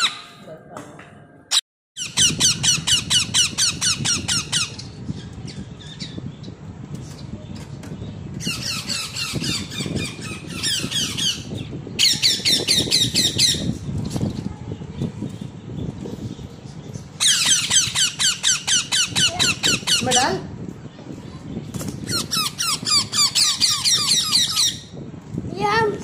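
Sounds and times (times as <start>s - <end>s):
parakeet chick chirping: 0.0s - 0.4s, 2.0s - 6.5s, 8.4s - 13.8s, 16.1s - 20.3s, 21.2s - 24.9s.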